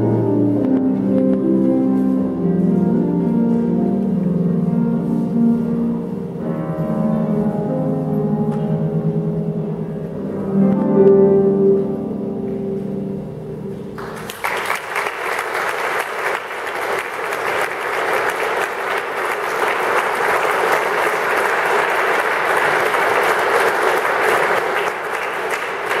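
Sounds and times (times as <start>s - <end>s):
harp ensemble chord: 0.0s - 14.0s
audience applause: 14.0s - 26.0s.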